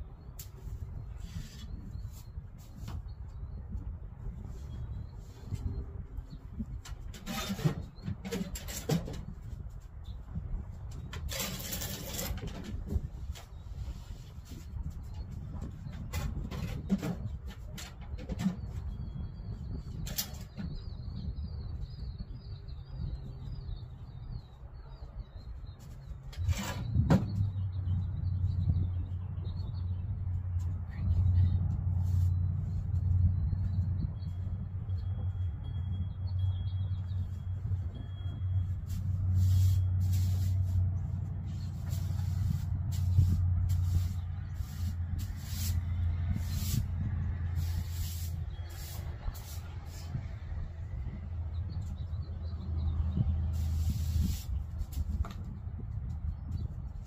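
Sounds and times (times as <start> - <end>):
bird chirping warble: 18.5 - 40.8, 41.5 - 54.4
steady low rumble: 20.7 - 57.0
broom sweeping floor: 32.0 - 32.8, 38.7 - 40.9, 41.5 - 50.2, 53.5 - 55.1.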